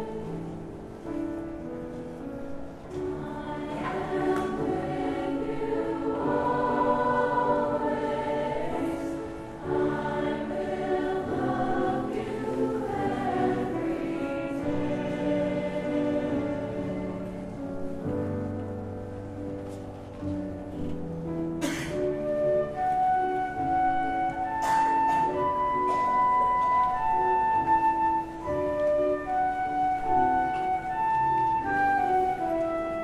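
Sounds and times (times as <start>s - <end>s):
mixed chorus singing in harmony: 0.0s - 1.0s, 2.9s - 18.2s.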